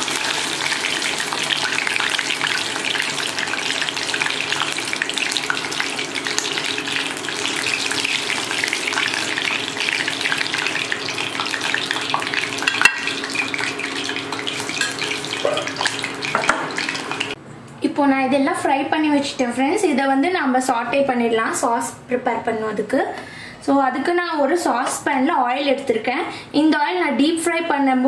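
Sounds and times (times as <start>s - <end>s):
deep-frying sizzle in hot oil: 0.0s - 17.4s.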